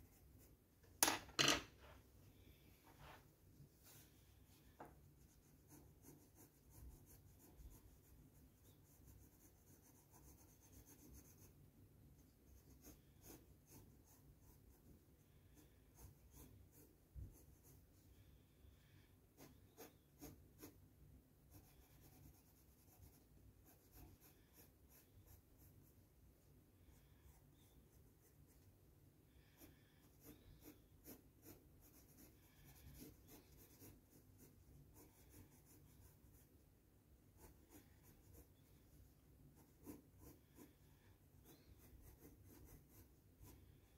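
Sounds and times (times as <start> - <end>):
pencil scratching on paper: 0.0 - 1.6, 3.8 - 20.9, 21.5 - 26.2, 26.9 - 28.7, 29.3 - 36.6, 37.2 - 43.9.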